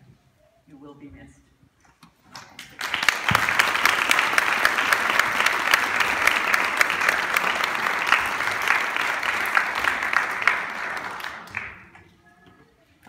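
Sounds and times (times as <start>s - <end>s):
crowd applauding: 2.5s - 12.1s.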